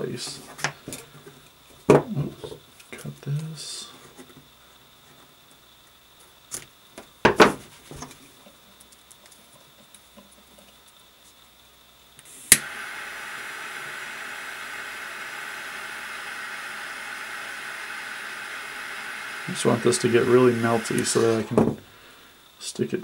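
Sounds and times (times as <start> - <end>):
torch lighter clicking alight: 12.2 - 21.6
torch flame hissing: 12.2 - 22.6.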